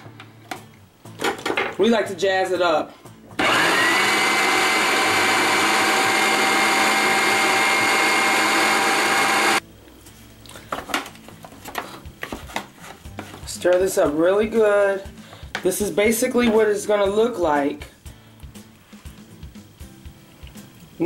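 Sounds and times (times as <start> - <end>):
food processor motor grinding: 3.4 - 9.6.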